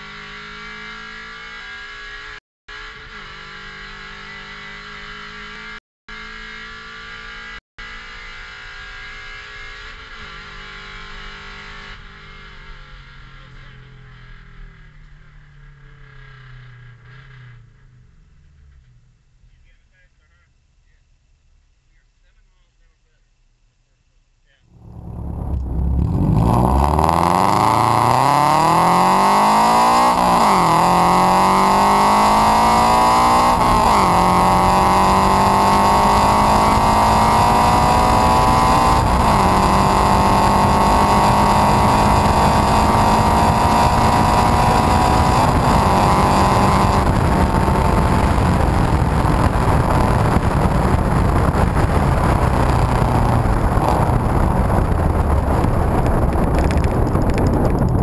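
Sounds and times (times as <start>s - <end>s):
road and wind noise: 0.0s - 19.5s, 24.7s - 58.0s
car exhaust revving through upshifts: 24.7s - 58.0s.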